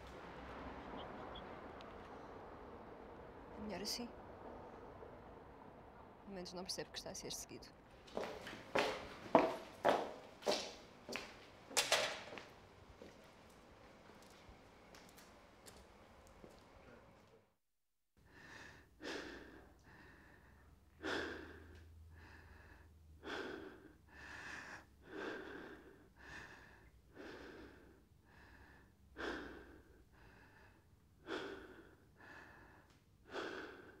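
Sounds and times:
person breathing in and out: 0:18.2 - 0:34.0.

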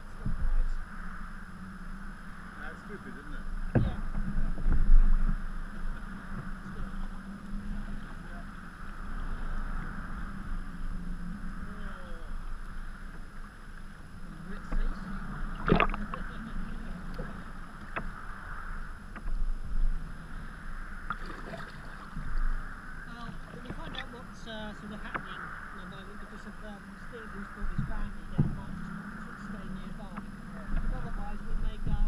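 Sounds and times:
water washing against hull: 0:11.5 - 0:32.0
paddle blades splashing: 0:11.6 - 0:31.8
sharp splash: 0:21.1 - 0:22.2.

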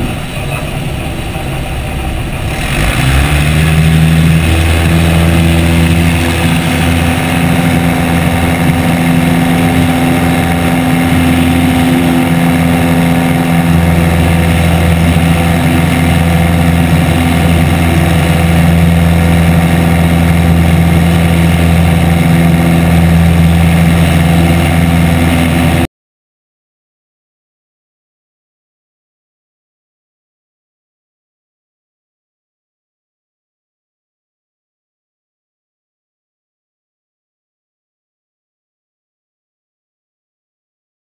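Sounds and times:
airplane engine and propeller drone: 0:00.0 - 0:25.9
rushing wind: 0:00.0 - 0:25.9.

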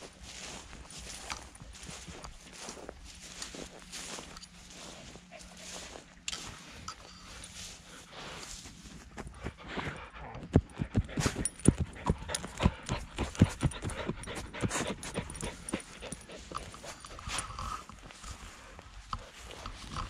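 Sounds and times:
dog thumps and breathy puffs: 0:09.0 - 0:20.0.

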